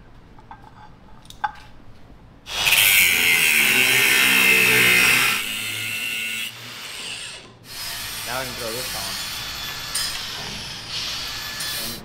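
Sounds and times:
angle grinder cutting steel: 2.5 - 12.0.

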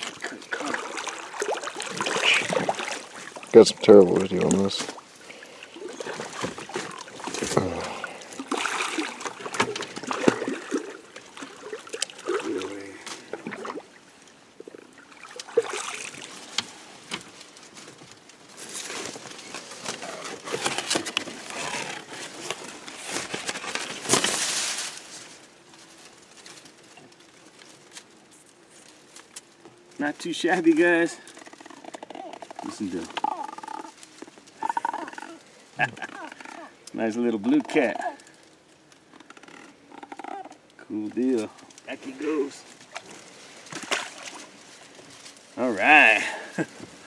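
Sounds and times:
fish splashing at water surface: 0.0 - 3.5, 4.9 - 14.0, 14.9 - 16.5, 43.7 - 44.5.

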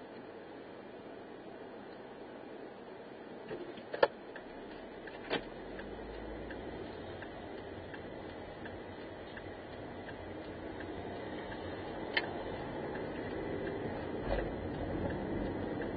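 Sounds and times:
car engine rumble: 0.0 - 15.9
turn signal ticking: 3.9 - 15.9.

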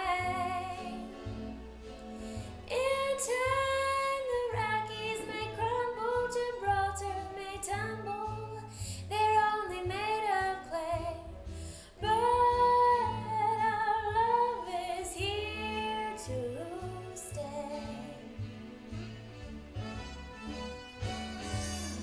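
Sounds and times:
woman singing jazz ballad: 0.0 - 1.4, 2.6 - 18.5
soft instrumental backing: 0.0 - 22.0.

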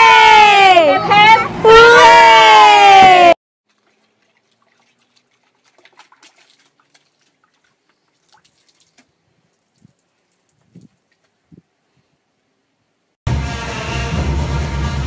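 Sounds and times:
water splashing and dripping: 3.6 - 11.6.

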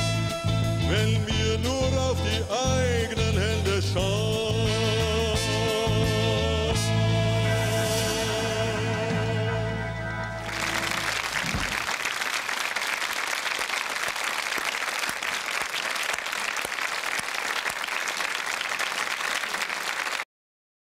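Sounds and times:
low song notes: 0.0 - 11.8
audience applauding: 10.2 - 20.3.

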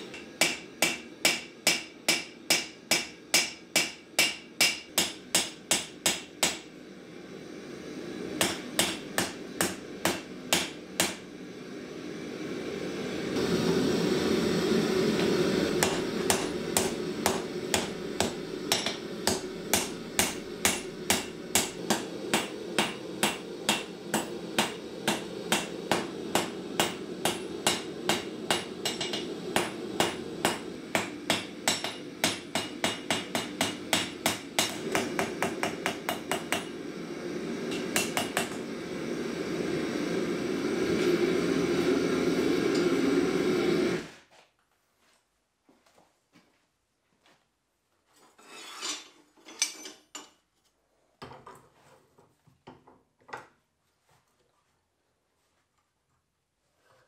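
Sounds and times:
hammer striking hot steel on anvil: 0.0 - 6.8, 8.4 - 11.3, 15.2 - 37.0, 37.6 - 38.8
gas forge burners roaring: 0.0 - 44.2.

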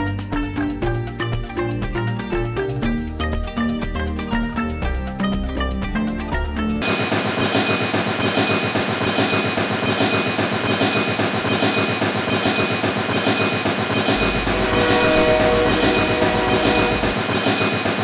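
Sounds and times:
train chugging clatter: 6.8 - 18.0
train horn: 14.2 - 17.2.

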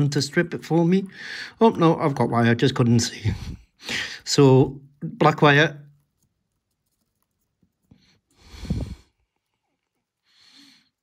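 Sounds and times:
person breathing out hard: 8.4 - 9.1.

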